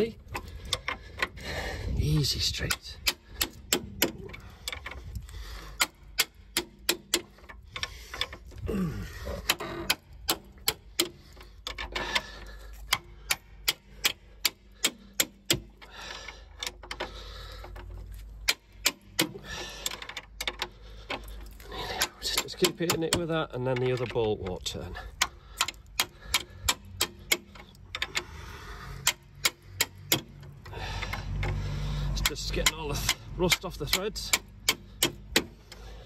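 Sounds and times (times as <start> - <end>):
socket ratchet clicking: 2.5 - 5.0, 5.6 - 8.5, 9.3 - 21.3, 25.1 - 36.0.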